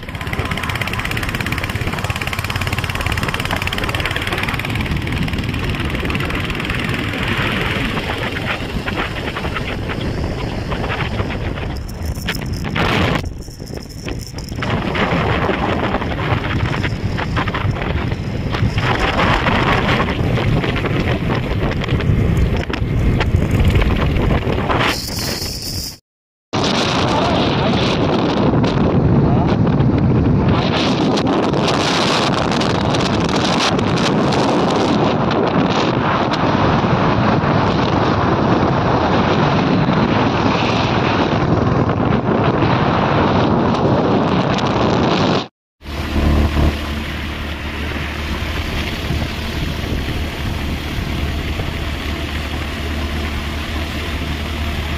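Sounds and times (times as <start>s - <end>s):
motorbike running: 0.0s - 26.0s, 26.7s - 54.9s
wind buffeting microphone: 0.0s - 26.0s, 26.6s - 54.9s.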